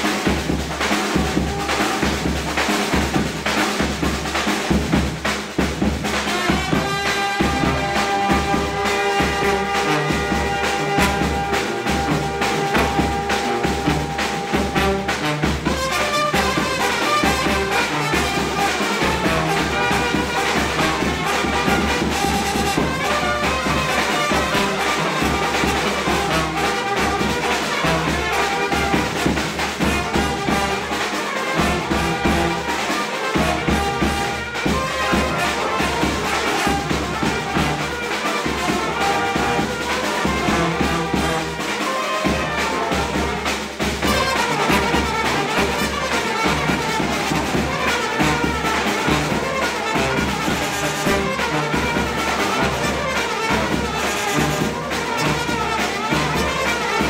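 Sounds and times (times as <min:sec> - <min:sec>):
brass band playing: 0:00.0 - 0:57.0.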